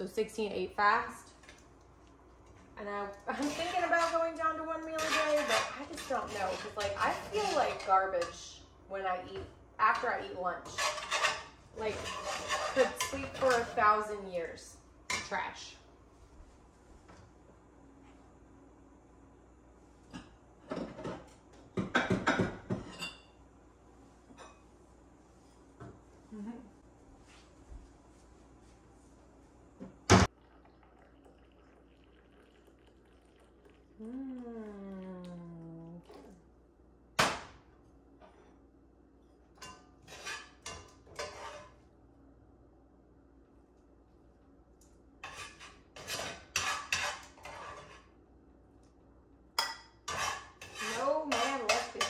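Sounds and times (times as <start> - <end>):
dishes knocking and clattering: 20.1 - 23.2.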